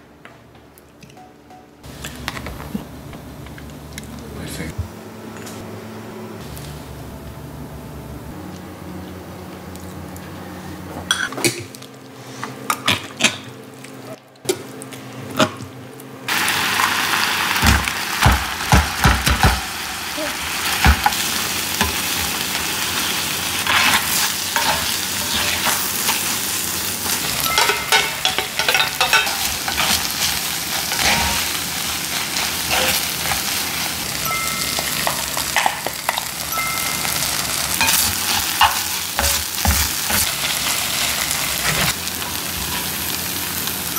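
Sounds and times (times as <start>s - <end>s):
rice sizzling in a skillet: 16.3s - 43.9s.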